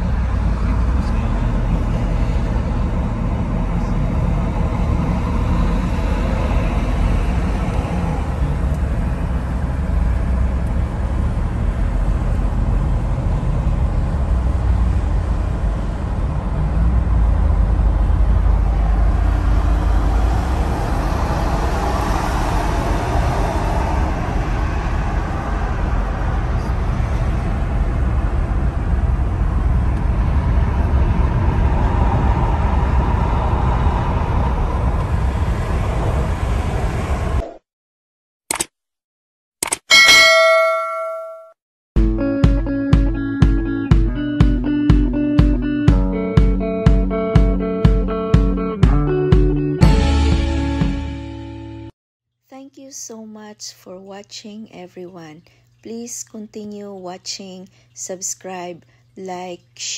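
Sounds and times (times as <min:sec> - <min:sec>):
vehicle cabin road rumble: 0:00.0 - 0:37.5.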